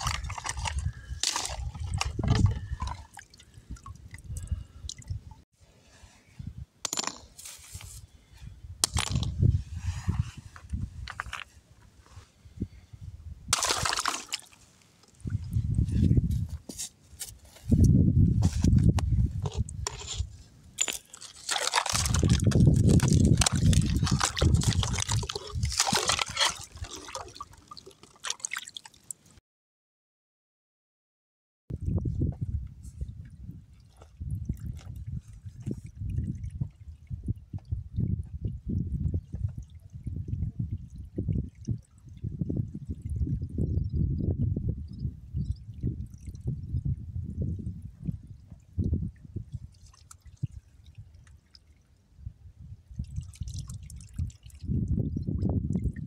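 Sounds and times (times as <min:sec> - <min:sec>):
liquid sloshing and trickling: 0:00.0 - 0:05.3, 0:13.5 - 0:16.0, 0:18.6 - 0:29.3, 0:49.3 - 0:52.0, 0:53.0 - 0:56.0
wet plaster mortar being worked: 0:19.4 - 0:28.5.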